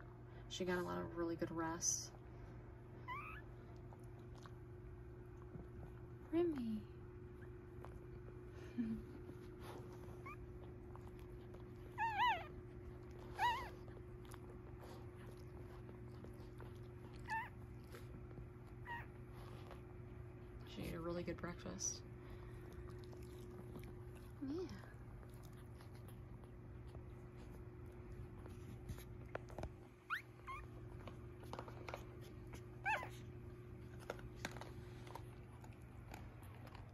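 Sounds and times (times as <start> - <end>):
steady low hum: 0.0 - 36.9
puppies squeaking: 3.0 - 3.6, 10.2 - 10.6, 11.8 - 14.0, 17.1 - 18.0, 18.8 - 19.1, 30.0 - 31.0, 32.5 - 33.2
puppy wavering cry: 3.0 - 3.6, 11.8 - 14.0, 17.1 - 17.6, 30.1 - 30.8, 32.8 - 33.2.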